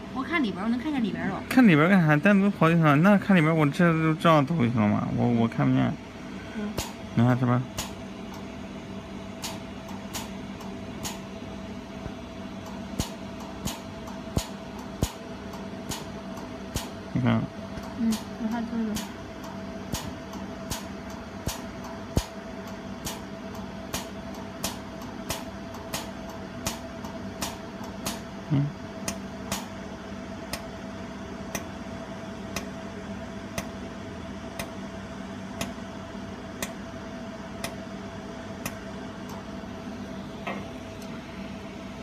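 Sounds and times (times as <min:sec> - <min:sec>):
machine hum: 0:00.0 - 0:42.0
laser welder snapping clicks: 0:06.8 - 0:07.0, 0:07.8 - 0:08.5, 0:09.4 - 0:11.3, 0:12.6 - 0:17.0, 0:18.9 - 0:28.3, 0:29.0 - 0:29.7, 0:31.5 - 0:31.7, 0:34.6 - 0:34.8.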